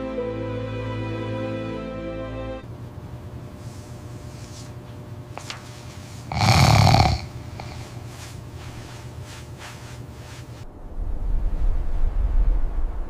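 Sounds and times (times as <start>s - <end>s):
dog snoring: 6.1s - 8.4s.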